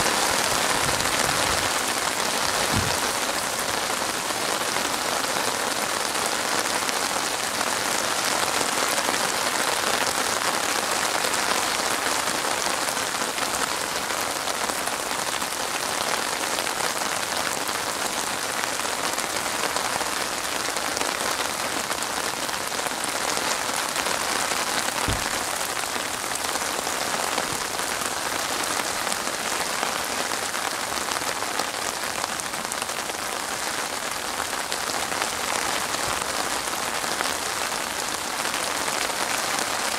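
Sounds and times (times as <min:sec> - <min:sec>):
rain falling on water: 0:00.0 - 0:39.9
brief low bump: 0:02.7 - 0:03.1, 0:25.0 - 0:25.4.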